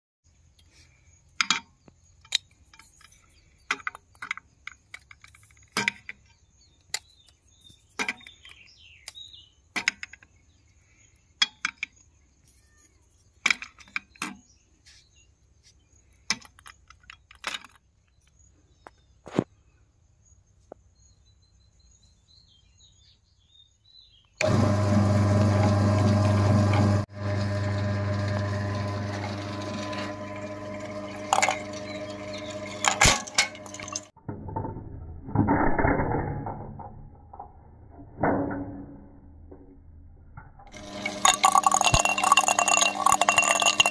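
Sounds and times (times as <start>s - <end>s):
loud steady machine hum: 24.4s - 34.1s.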